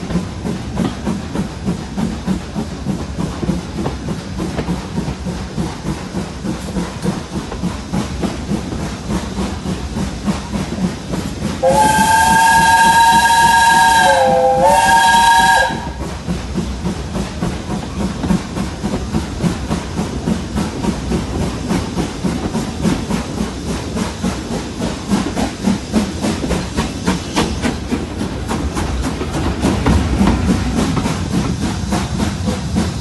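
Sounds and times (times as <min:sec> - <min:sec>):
train rumbling along track: 0:00.0 - 0:33.0
steam locomotive whistle: 0:11.6 - 0:16.0.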